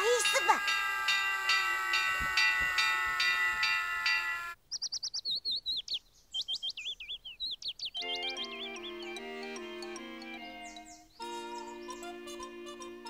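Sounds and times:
small songbird chirping: 4.6 - 12.3
bell-like music cue: 8.0 - 13.0.

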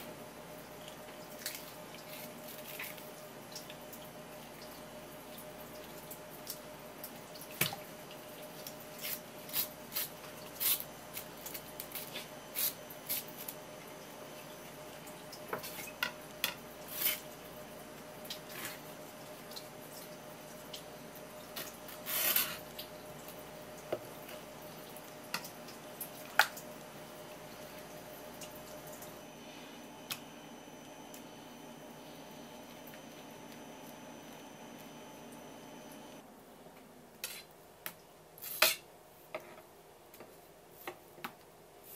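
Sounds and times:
knife and hands working fish: 0.7 - 6.6, 7.4 - 13.6, 15.1 - 20.8, 21.5 - 26.7, 37.2 - 37.5
knife scrape on board: 16.9 - 17.3, 22.0 - 22.6, 37.2 - 37.5.

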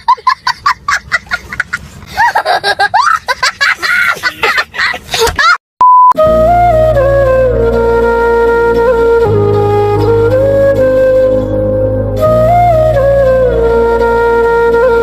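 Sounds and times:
short steady beep: 5.8 - 6.2
flute music: 6.1 - 15.0.

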